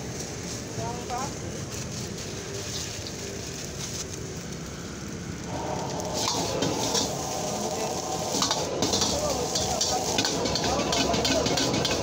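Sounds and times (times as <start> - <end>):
food sizzling in a wok: 0.0 - 12.0
gas burner rushing: 0.0 - 12.0
metal ladle scraping wok: 6.0 - 12.0.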